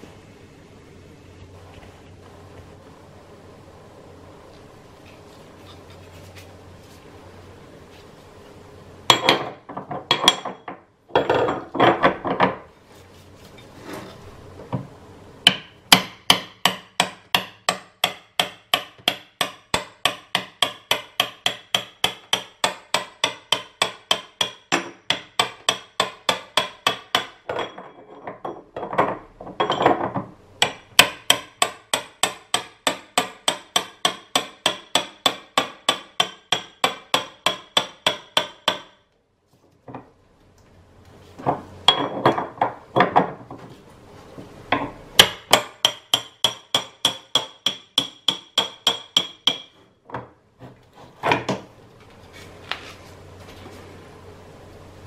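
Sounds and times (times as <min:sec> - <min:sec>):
hammer striking metal wrench: 0:15.5 - 0:27.9, 0:30.6 - 0:39.0, 0:44.7 - 0:49.7.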